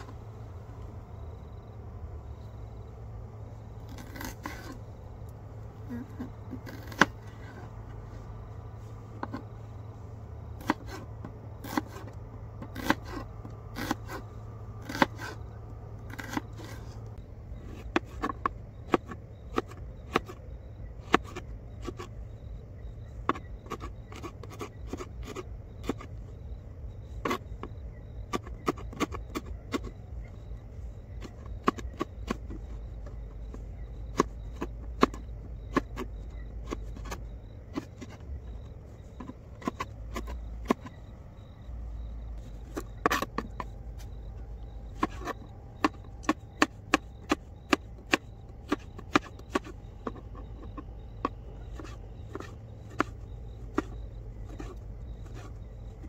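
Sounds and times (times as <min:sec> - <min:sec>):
steady low hum: 0:00.0 - 0:56.0
knife chopping vegetables: 0:10.5 - 0:11.0, 0:11.6 - 0:14.2, 0:14.8 - 0:15.4, 0:16.1 - 0:16.8, 0:31.2 - 0:38.2, 0:39.1 - 0:41.0, 0:42.6 - 0:55.5.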